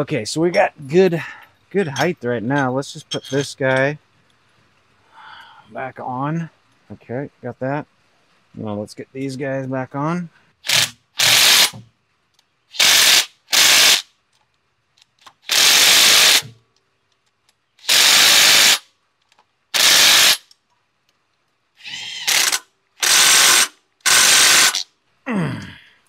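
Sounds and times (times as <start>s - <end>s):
power tool tightening fasteners: 10.6s - 11.8s, 12.7s - 14.0s, 15.2s - 16.6s, 17.8s - 18.8s, 19.7s - 20.6s, 21.8s - 24.9s.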